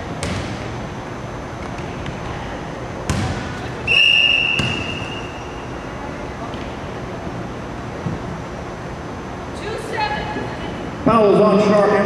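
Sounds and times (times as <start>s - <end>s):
basketball bouncing on wooden floor: 0.2s - 0.6s, 3.1s - 3.4s, 4.6s - 4.9s
referee's whistle blast: 3.9s - 5.6s.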